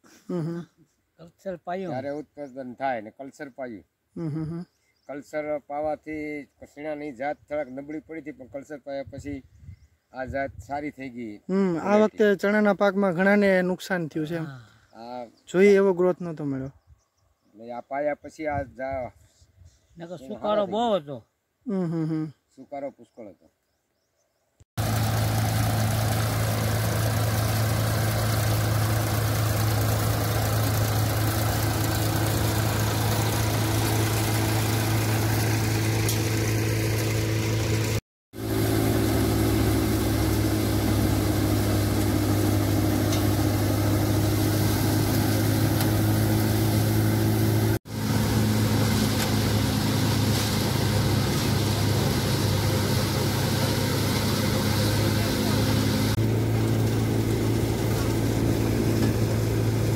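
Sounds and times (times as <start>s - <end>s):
thresher drum whirring: 24.8s - 59.9s
tractor engine hum: 24.8s - 59.9s.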